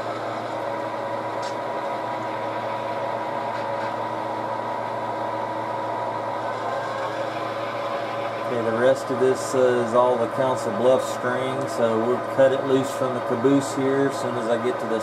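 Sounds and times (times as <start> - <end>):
model train hum: 0.0 - 15.0.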